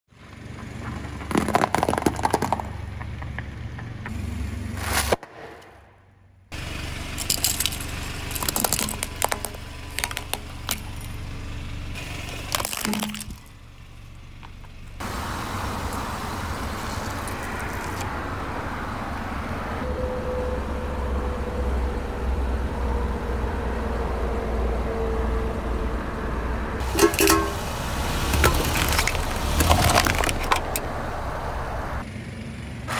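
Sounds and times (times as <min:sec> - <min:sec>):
car low rumble: 0:00.1 - 0:32.9
sharp cracks under car tyre: 0:00.7 - 0:04.1, 0:07.1 - 0:11.2, 0:12.0 - 0:13.6, 0:28.2 - 0:30.9.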